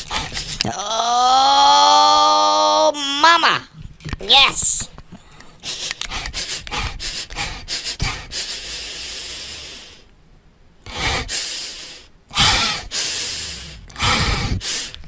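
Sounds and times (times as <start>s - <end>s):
dog breath noise: 5.3s - 10.1s, 10.9s - 15.0s.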